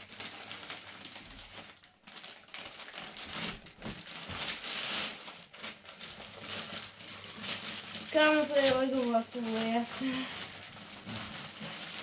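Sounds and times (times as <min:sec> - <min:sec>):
plastic mailer bag crinkling: 0:00.0 - 0:12.0.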